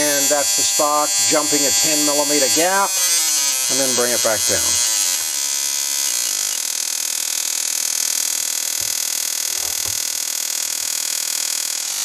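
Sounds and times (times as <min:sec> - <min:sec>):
electric spark hissing buzz: 0:00.1 - 0:06.2, 0:08.3 - 0:11.2.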